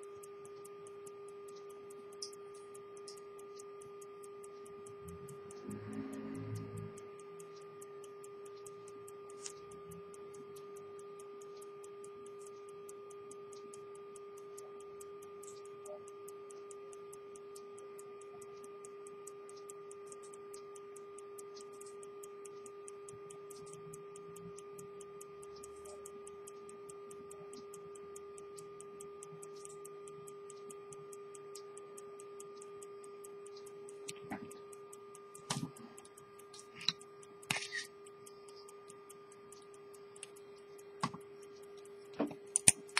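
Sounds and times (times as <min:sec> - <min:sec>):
pocket watch ticking: 0:00.0 - 0:42.9
steady hum: 0:00.0 - 0:42.9.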